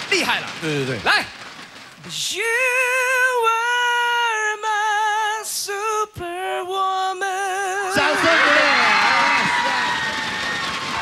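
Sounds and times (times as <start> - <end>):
man singing unaccompanied: 2.1 - 8.2.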